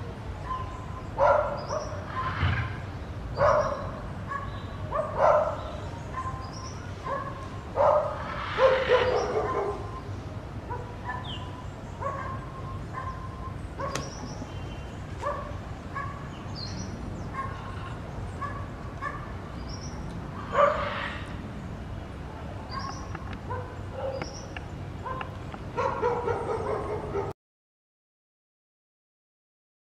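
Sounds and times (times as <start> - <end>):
dogs barking and yelping: 0.4 - 2.6, 3.4 - 10.1, 10.7 - 14.2, 15.2 - 16.3, 17.3 - 19.4, 20.4 - 21.2, 22.7 - 27.3.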